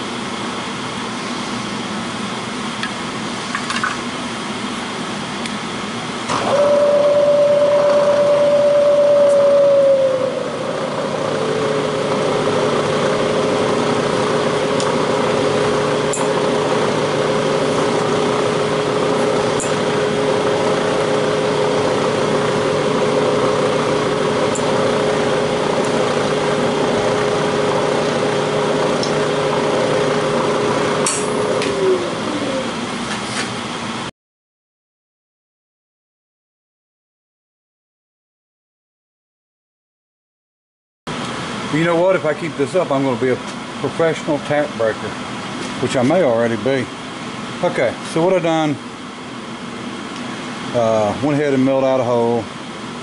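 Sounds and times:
milling machine hum: 4.3s - 34.1s
loud cutting whine: 6.2s - 33.1s.

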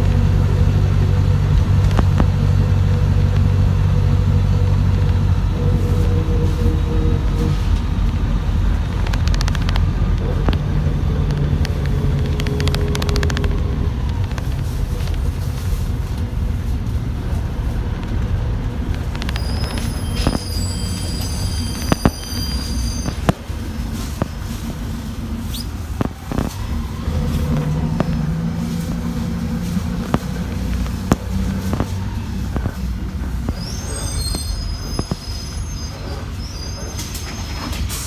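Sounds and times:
bus engine and road rumble: 0.0s - 38.0s
high thin squeal: 19.3s - 23.3s, 33.5s - 38.0s.

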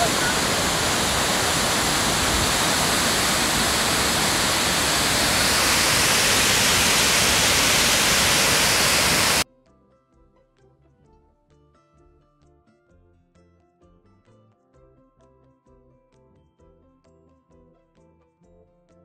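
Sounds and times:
river rushing over rocks: 0.0s - 9.4s
faint background music: 9.4s - 19.0s.

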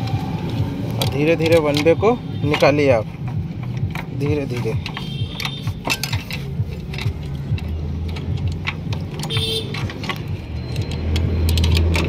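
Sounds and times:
vehicle engine humming: 0.0s - 12.0s
metal tools scraping metal: 1.0s - 12.0s.

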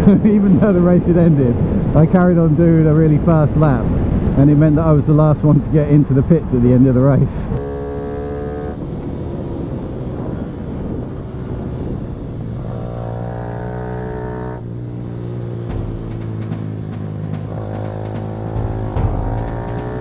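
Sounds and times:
small motorcycle engine revving: 7.5s - 20.0s.

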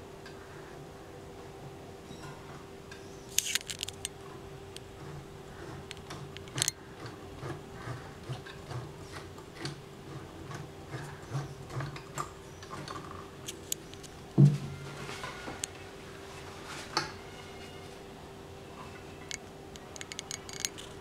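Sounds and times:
low thump: 14.4s - 14.7s.

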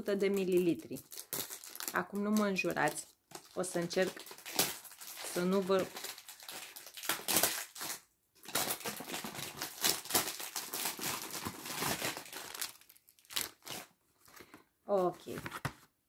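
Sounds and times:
packaging crinkling and tearing: 0.3s - 14.6s.

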